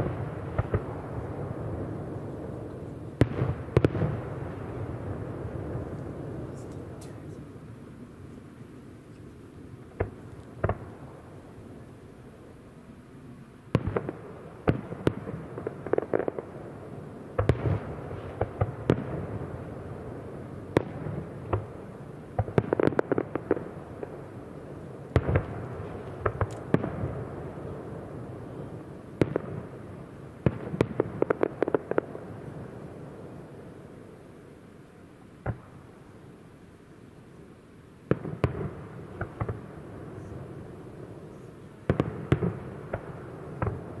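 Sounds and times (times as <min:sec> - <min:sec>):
firework booms: 0:00.0 - 0:07.8, 0:09.9 - 0:11.4, 0:13.7 - 0:20.1, 0:25.1 - 0:33.3, 0:38.0 - 0:44.0.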